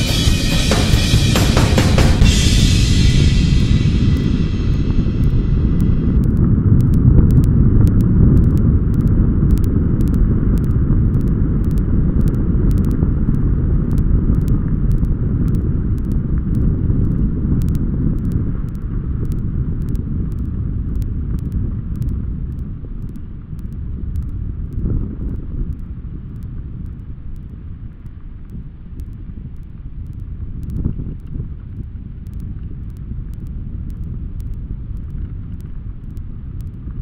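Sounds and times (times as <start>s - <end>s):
music track: 0.0s - 6.3s
wind buffeting microphone: 2.3s - 37.0s
bike ticks and rattles: 6.1s - 25.0s.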